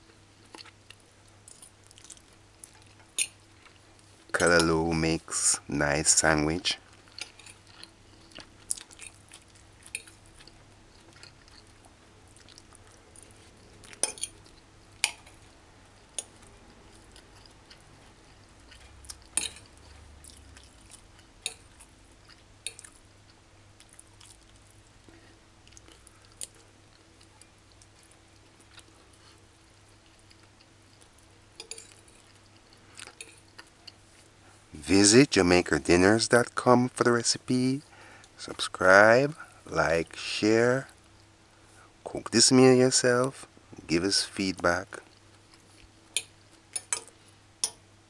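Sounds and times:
faint steady hum: 0.0 - 48.0.

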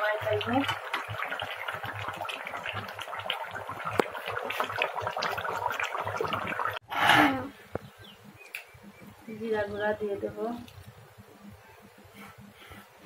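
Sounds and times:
curry boiling and bubbling: 0.0 - 6.9.

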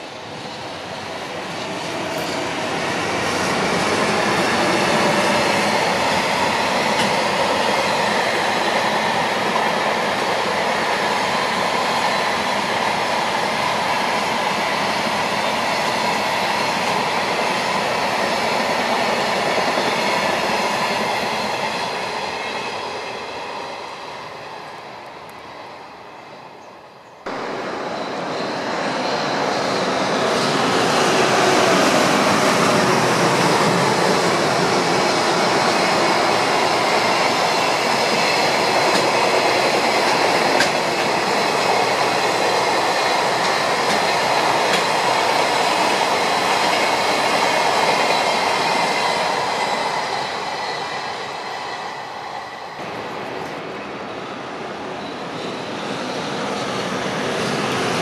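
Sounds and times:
freight train rolling past: 0.0 - 58.0
high whine from train wheels: 0.0 - 58.0.

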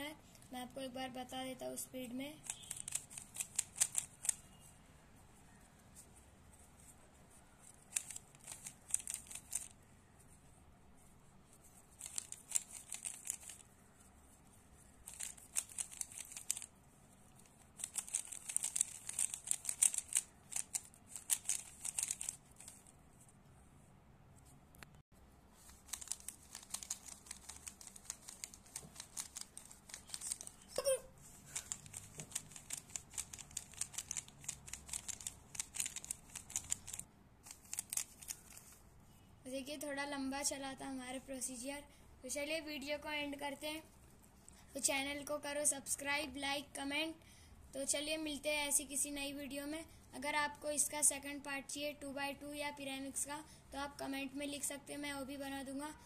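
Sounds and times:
puzzle cube clicking and rattling: 2.4 - 4.5, 7.7 - 9.8, 11.8 - 13.7, 15.0 - 22.9, 25.7 - 30.7, 31.4 - 38.6.

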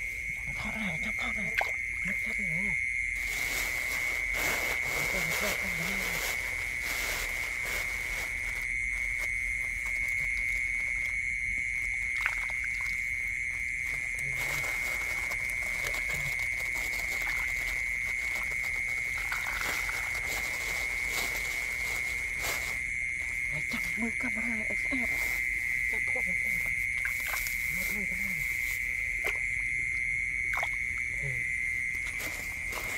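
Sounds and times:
shrill night insect chorus: 0.0 - 32.9
rustling in grass and plastic bag: 3.2 - 11.1, 13.9 - 29.2, 32.0 - 32.9.

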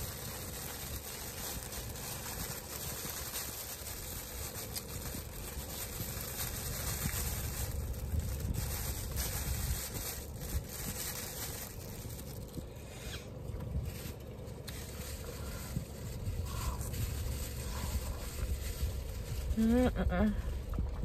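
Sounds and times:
low rumble inside car: 0.0 - 21.0
plastic bag crinkling: 0.0 - 21.0.

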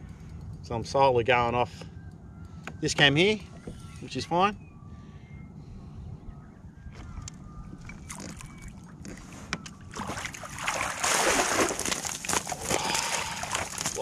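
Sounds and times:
fish thrashing and splashing water: 9.8 - 14.0.

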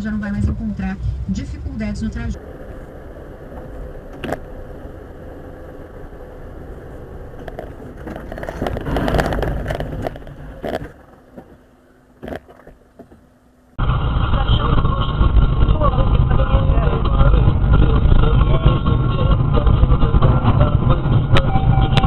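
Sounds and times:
car road and engine rumble: 0.0 - 22.0
clattering and scraping: 6.9 - 13.3.

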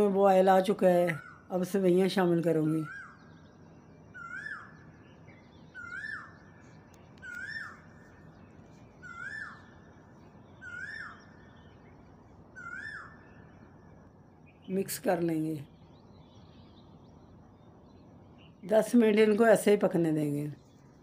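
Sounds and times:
steady low hiss: 0.0 - 21.0
bird calling: 5.8 - 8.2, 9.0 - 9.8, 10.6 - 11.6, 12.6 - 13.5.

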